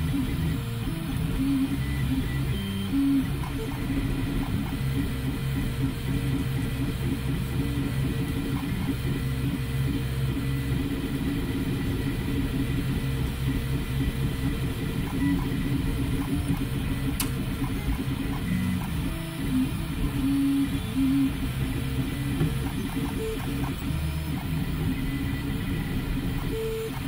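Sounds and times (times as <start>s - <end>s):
sharp click: 17.1s - 17.4s.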